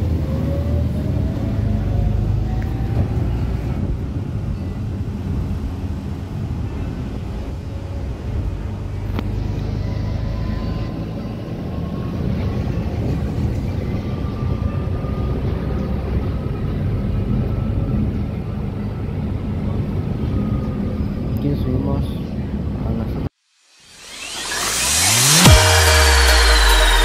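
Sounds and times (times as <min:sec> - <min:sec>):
bus engine rumble: 0:00.0 - 0:23.4
road noise: 0:00.0 - 0:27.0
rising whine: 0:23.4 - 0:27.0.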